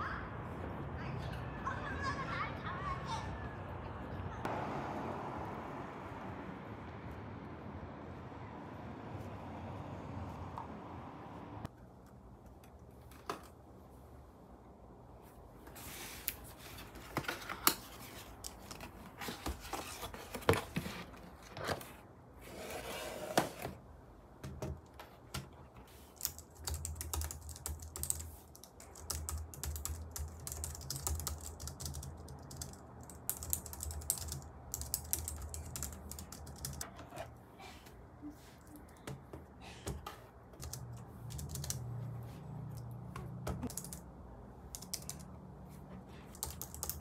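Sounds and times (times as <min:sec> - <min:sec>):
fast typing on keyboard: 0:26.1 - 0:36.8, 0:40.6 - 0:41.9, 0:43.6 - 0:44.0, 0:44.7 - 0:45.3, 0:46.3 - 0:47.0.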